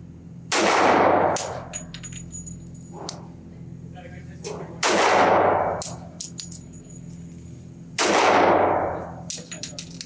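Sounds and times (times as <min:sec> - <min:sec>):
pistol shots echoing: 0:00.5 - 0:01.6, 0:04.8 - 0:06.1, 0:08.0 - 0:09.0.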